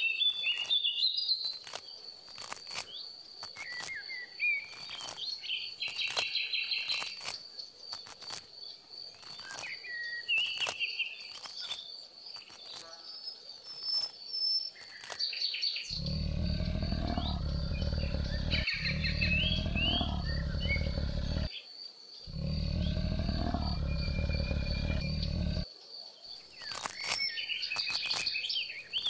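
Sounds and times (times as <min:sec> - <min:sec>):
birds chirping: 0:14.6 - 0:25.6
deep rumbling animal growl: 0:15.9 - 0:21.5, 0:22.3 - 0:25.7
high insect whine: 0:15.9 - 0:29.0.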